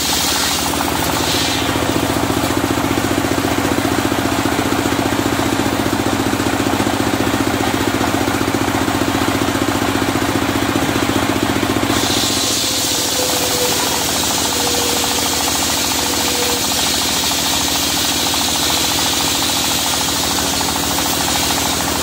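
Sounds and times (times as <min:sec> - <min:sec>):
saw blade hissing in wood: 0:00.0 - 0:02.0, 0:11.9 - 0:17.1
engine chugging: 0:00.0 - 0:22.0.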